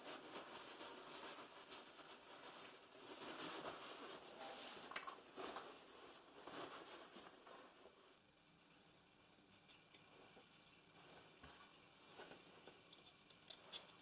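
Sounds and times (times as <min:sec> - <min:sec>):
paper towels rustling: 0:00.0 - 0:08.2.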